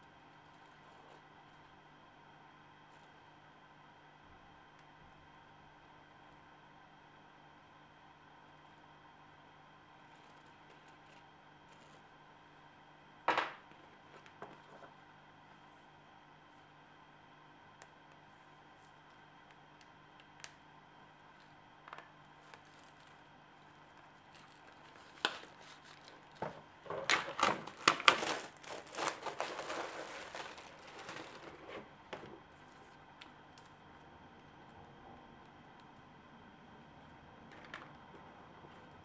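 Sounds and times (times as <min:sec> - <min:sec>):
plastic wrapping crinkling and tearing: 0:21.4 - 0:31.9.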